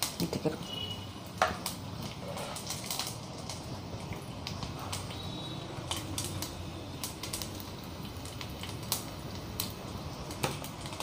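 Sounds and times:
spices crackling in hot oil: 0:00.0 - 0:11.0.

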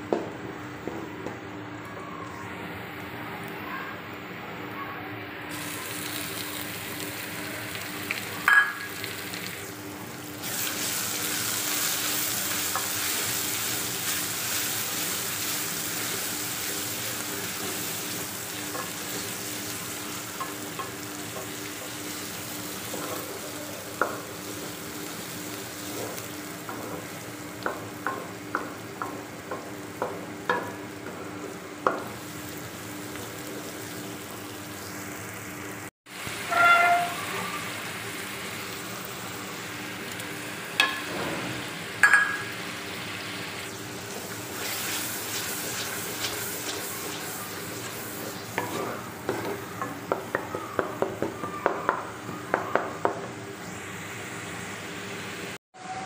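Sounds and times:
onions sizzling in oil: 0:05.5 - 0:55.6
spoon tapping pot: 0:08.5 - 0:08.9, 0:42.0 - 0:42.4.

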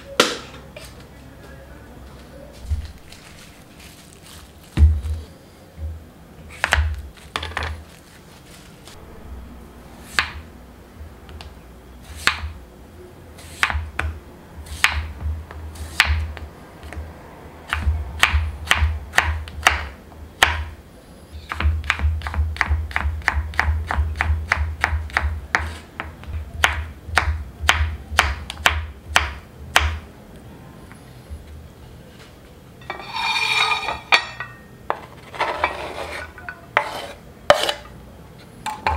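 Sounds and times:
rustling scrape: 0:02.5 - 0:05.4, 0:07.2 - 0:09.0, 0:32.0 - 0:34.1, 0:35.0 - 0:37.9
knife chopping on wooden board: 0:06.5 - 0:07.7, 0:10.1 - 0:10.4, 0:13.5 - 0:17.0, 0:21.5 - 0:30.0.

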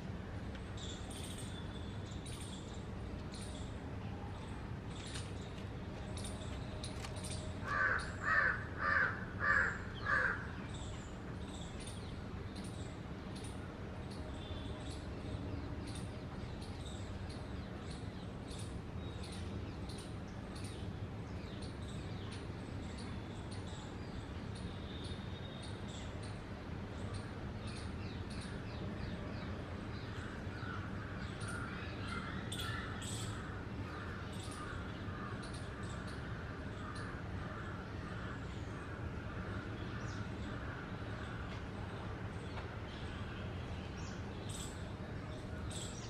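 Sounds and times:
harsh chattering bird calls: 0:27.0 - 0:41.5.

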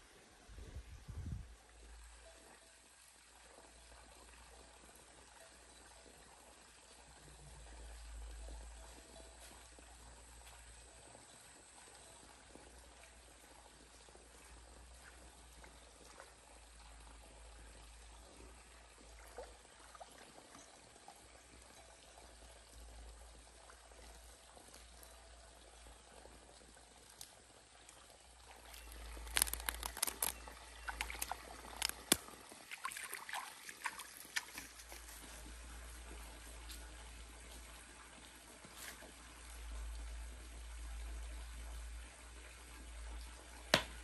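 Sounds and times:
stream trickling: 0:00.1 - 0:44.0
splashing and sloshing water: 0:28.4 - 0:37.0.

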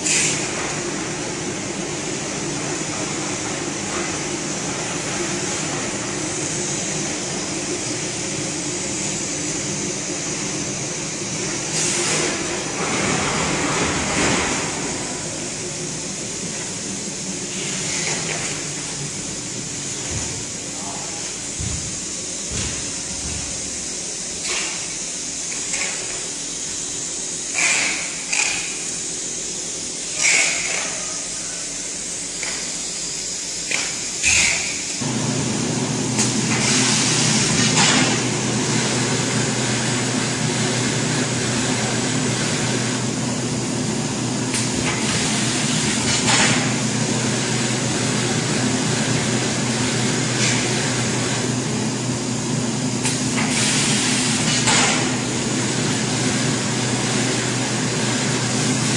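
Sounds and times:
machinery hissing: 0:00.0 - 0:58.9.

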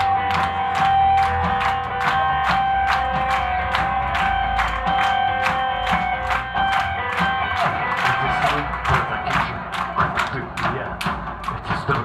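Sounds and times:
bass guitar: 0:00.0 - 0:12.0.

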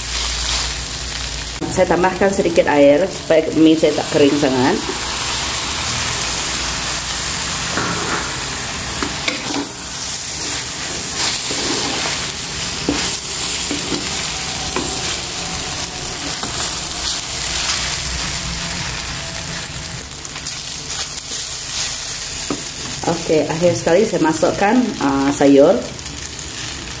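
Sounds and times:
noodles sizzling in a wok: 0:00.0 - 0:27.0
spatula scraping a pan: 0:07.8 - 0:19.0.

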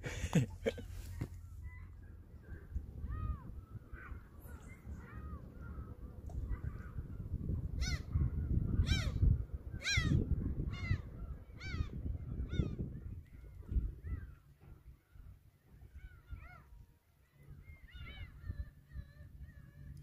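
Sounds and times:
steady low rush: 0:00.0 - 0:13.0
bird harsh calls: 0:00.6 - 0:14.5.

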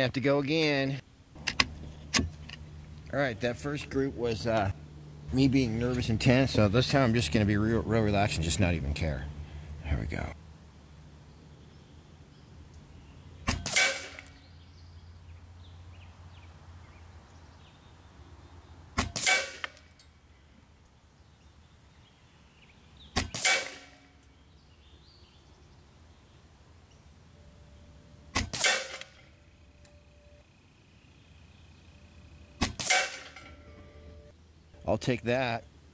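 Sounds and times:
air rifle shots: 0:13.4 - 0:14.4, 0:19.0 - 0:19.9, 0:23.2 - 0:24.1, 0:28.3 - 0:29.3, 0:32.6 - 0:33.5.

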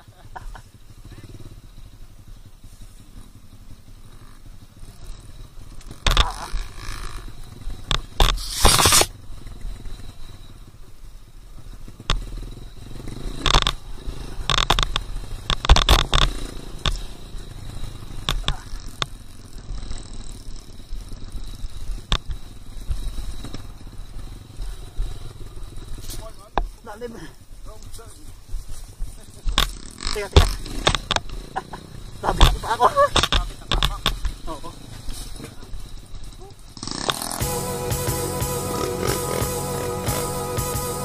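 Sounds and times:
motorcycle engine running rough: 0:00.0 - 0:41.0
noisy engine bursts: 0:36.8 - 0:41.0.

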